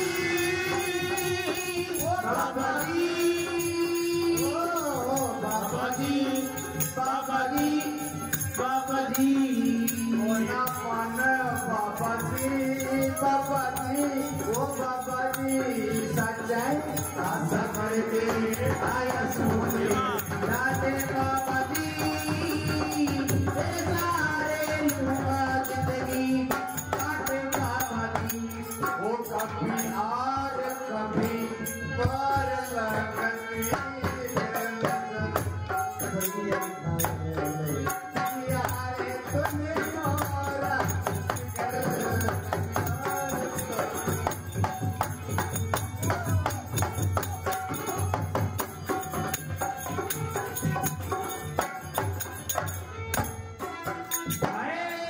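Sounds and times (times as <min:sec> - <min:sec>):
jingling percussion: 0:00.0 - 0:55.0
man singing: 0:00.0 - 0:55.0
hand drum: 0:38.1 - 0:54.7.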